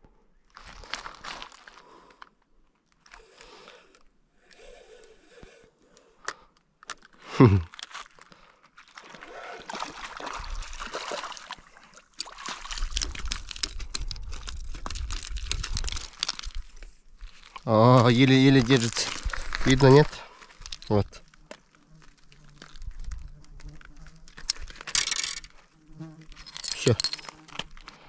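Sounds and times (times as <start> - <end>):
water splashing and sloshing: 8.8 - 16.6
handling noise: 26.4 - 27.7.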